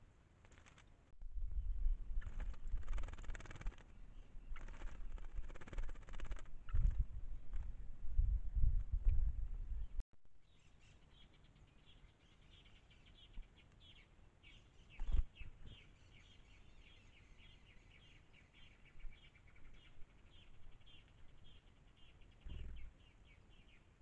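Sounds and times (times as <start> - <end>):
finches chirping: 10.5 - 24.0.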